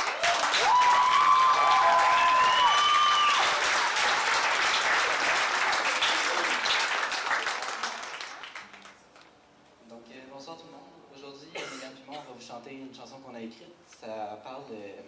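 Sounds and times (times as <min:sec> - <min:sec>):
shrill cheers: 0:00.0 - 0:03.6
audience applauding: 0:00.0 - 0:09.2.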